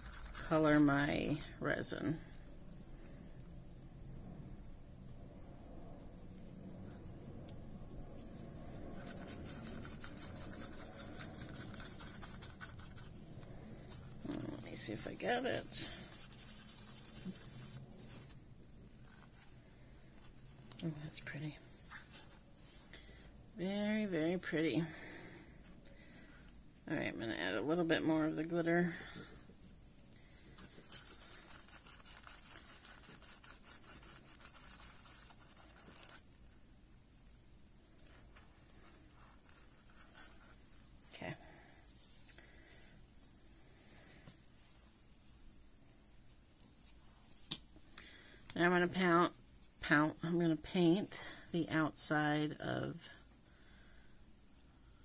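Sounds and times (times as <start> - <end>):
paintbrush scraping in small cup: 6.6 - 18.4
stick scraping paper cup: 8.8 - 13.2.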